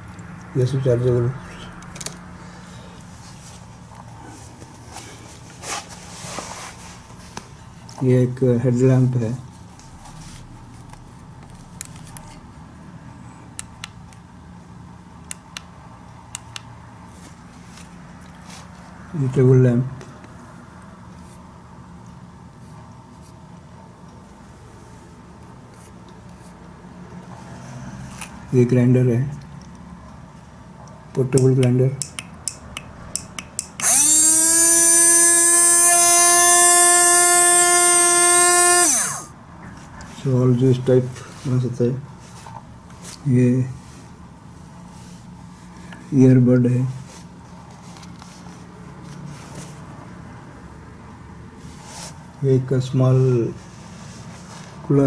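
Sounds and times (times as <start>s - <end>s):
low steady hum: 0.0s - 50.8s
small blender motor whining: 33.8s - 39.4s.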